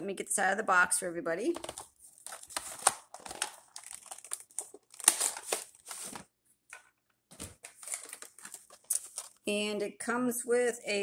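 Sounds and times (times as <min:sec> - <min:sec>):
cardboard and plastic packaging rustling: 0:01.6 - 0:09.5.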